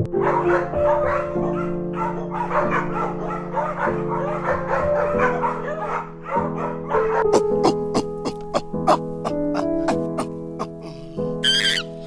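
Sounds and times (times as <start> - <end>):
background music with chords: 0.0 - 12.0
small dog yipping: 11.4 - 12.0.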